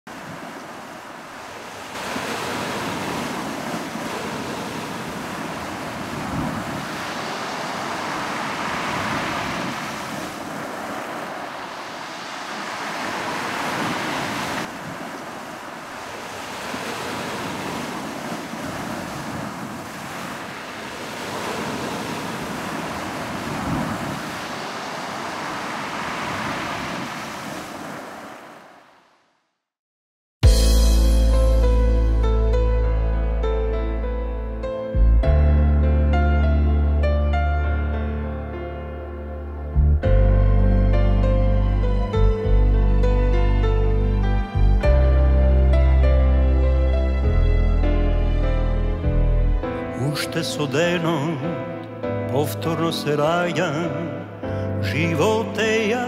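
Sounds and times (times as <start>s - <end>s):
ocean waves breaking: 0.1s - 29.2s, 40.4s - 56.0s.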